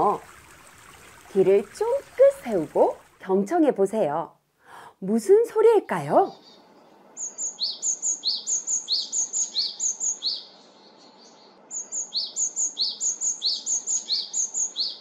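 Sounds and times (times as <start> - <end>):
great tit singing: 5.8 - 15.0.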